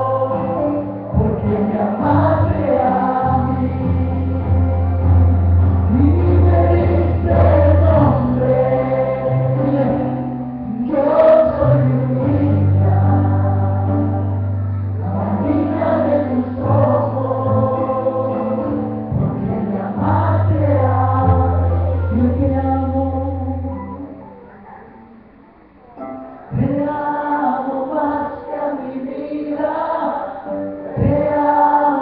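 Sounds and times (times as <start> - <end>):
band playing: 0.0 - 24.2
held bass notes: 0.0 - 24.4
group of voices singing: 0.0 - 25.2, 26.4 - 32.0.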